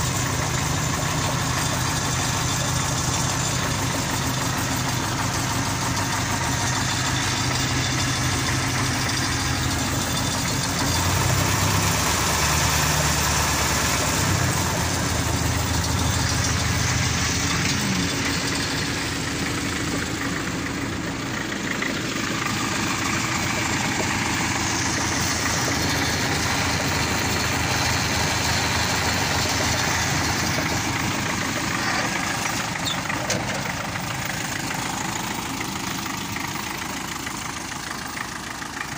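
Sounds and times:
tractor diesel engine idling: 0:00.0 - 0:38.9.

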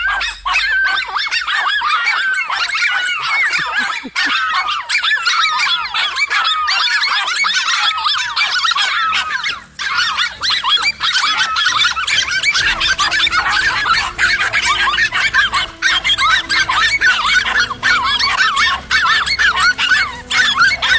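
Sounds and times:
dogs barking and yelping: 0:00.0 - 0:20.9.

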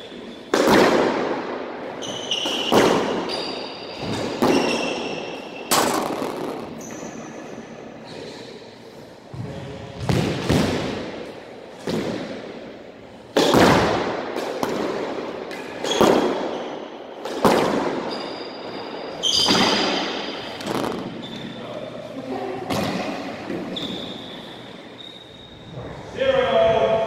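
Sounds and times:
squash ball smacks echoing: 0:00.5 - 0:01.6, 0:02.4 - 0:03.4, 0:04.0 - 0:06.8, 0:09.3 - 0:12.6, 0:13.3 - 0:18.2, 0:19.4 - 0:21.2, 0:22.7 - 0:23.7
shoes squeaking on court floor: 0:01.9 - 0:05.8, 0:06.7 - 0:08.6, 0:15.5 - 0:16.9, 0:17.9 - 0:22.0, 0:23.1 - 0:26.0.

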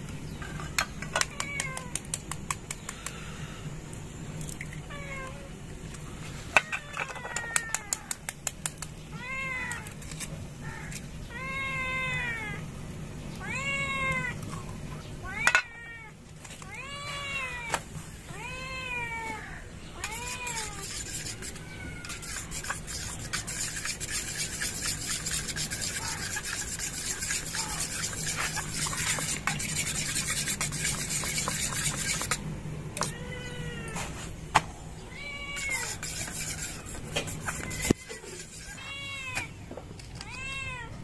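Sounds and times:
cat meowing: 0:13.4 - 0:14.4, 0:35.1 - 0:36.0, 0:38.8 - 0:39.6
spoon beating eggs in steel bowl: 0:20.0 - 0:32.4, 0:35.6 - 0:38.8.

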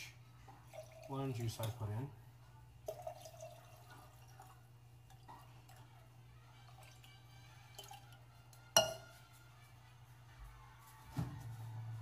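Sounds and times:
liquid trickling and dripping: 0:00.5 - 0:02.0, 0:02.8 - 0:05.9.

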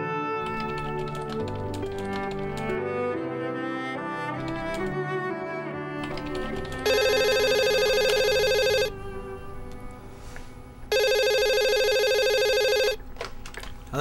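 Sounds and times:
desk telephone ringing: 0:06.1 - 0:09.0, 0:10.9 - 0:13.2.

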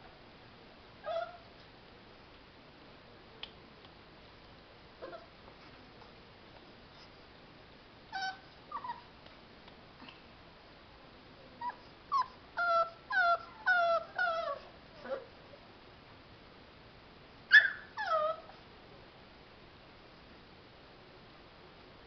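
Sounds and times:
puppy whimpering: 0:01.0 - 0:01.4, 0:05.0 - 0:05.3, 0:08.1 - 0:09.1, 0:11.6 - 0:15.3, 0:17.5 - 0:18.6.

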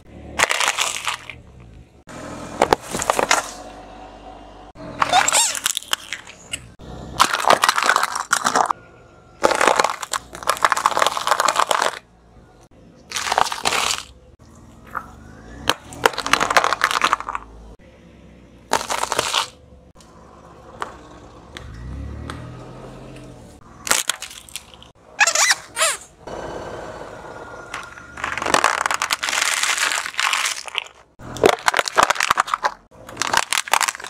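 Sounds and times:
tyre crushing small objects: 0:00.3 - 0:01.8, 0:02.6 - 0:03.7, 0:05.0 - 0:08.8, 0:09.4 - 0:12.1, 0:13.1 - 0:14.2, 0:14.8 - 0:17.6, 0:18.7 - 0:20.1, 0:23.8 - 0:26.0, 0:27.7 - 0:34.0.

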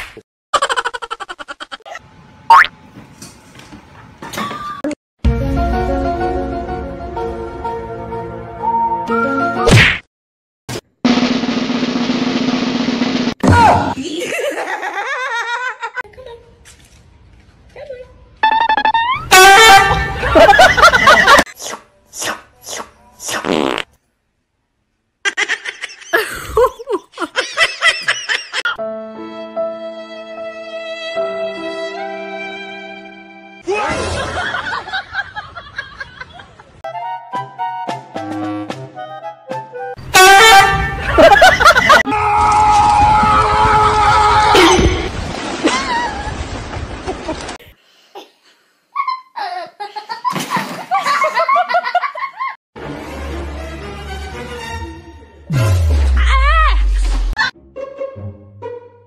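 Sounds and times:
person laughing: 0:00.6 - 0:02.0, 0:14.0 - 0:16.0, 0:20.0 - 0:21.4, 0:25.3 - 0:28.8, 0:41.0 - 0:42.1
raspy fart-like noise: 0:23.3 - 0:23.9
choppy water: 0:44.0 - 0:47.7.

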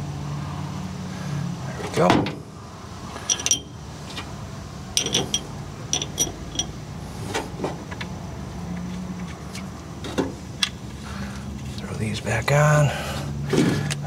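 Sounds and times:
metal tools clinking: 0:03.2 - 0:04.2, 0:05.0 - 0:06.8.

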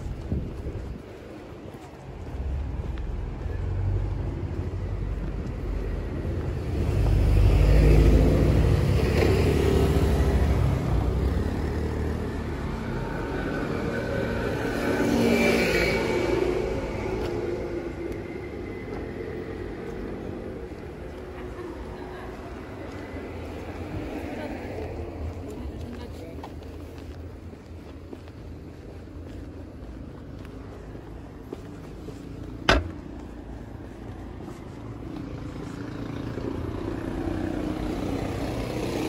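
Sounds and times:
cars passing: 0:00.0 - 0:39.0
motor scooter passing: 0:05.0 - 0:25.1, 0:34.2 - 0:39.0.

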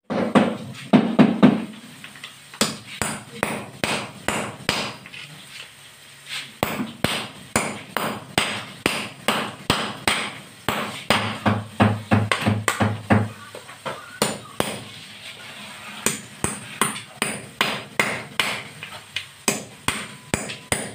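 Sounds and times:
hammer striking a chisel: 0:02.6 - 0:05.0, 0:06.6 - 0:13.3, 0:14.2 - 0:14.8, 0:16.0 - 0:18.7, 0:19.4 - 0:20.9.

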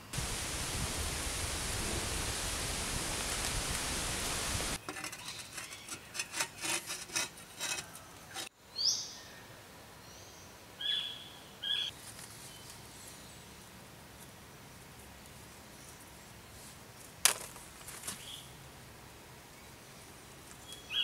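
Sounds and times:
steady hiss: 0:00.0 - 0:04.8.

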